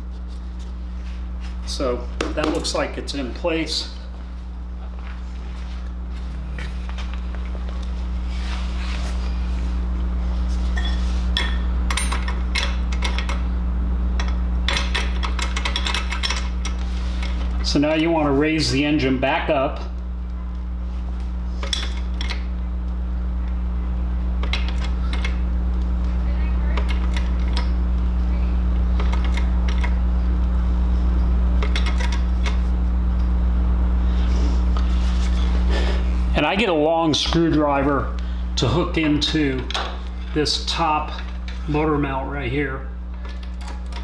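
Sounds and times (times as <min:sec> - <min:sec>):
steady low hum: 0:00.0 - 0:44.0
hydraulic jack clicking and clanking: 0:10.8 - 0:13.4, 0:14.2 - 0:17.6, 0:21.6 - 0:22.5, 0:24.4 - 0:25.4, 0:29.0 - 0:30.0, 0:31.6 - 0:32.6, 0:43.1 - 0:44.0.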